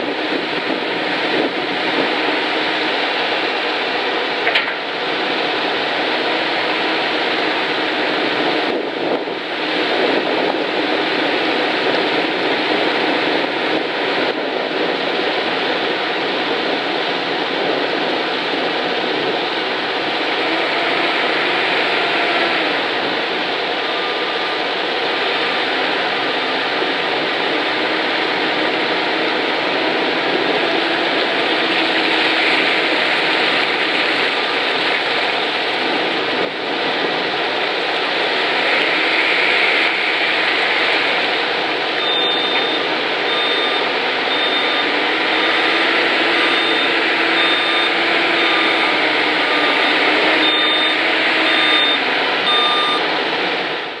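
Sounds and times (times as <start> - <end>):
diesel engine running: 0.0 - 54.0
reversing alarm beeps: 42.0 - 53.0.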